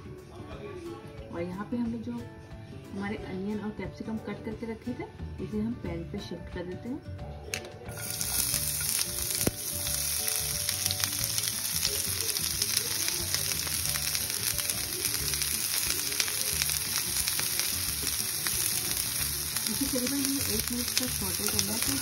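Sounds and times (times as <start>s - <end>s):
vegetables sizzling in oil: 7.9s - 22.0s.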